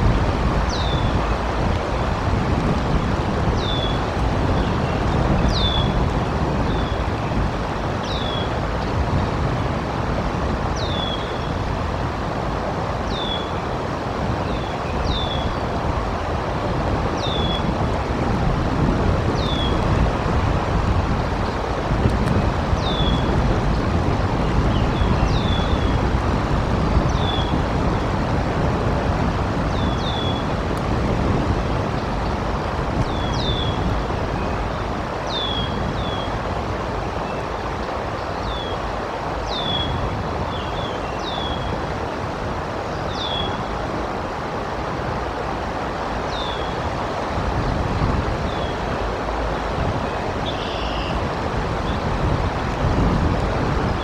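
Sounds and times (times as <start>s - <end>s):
flowing water: 0.0s - 54.0s
gusty wind on microphone: 0.0s - 54.0s
rain: 0.0s - 54.0s.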